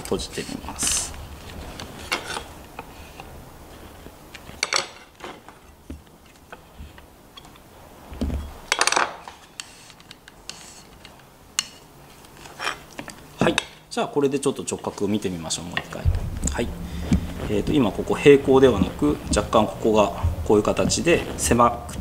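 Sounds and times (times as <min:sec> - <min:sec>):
metal tools clinking on wood: 0:04.6 - 0:05.4
low thump: 0:16.0 - 0:17.8, 0:20.2 - 0:20.7.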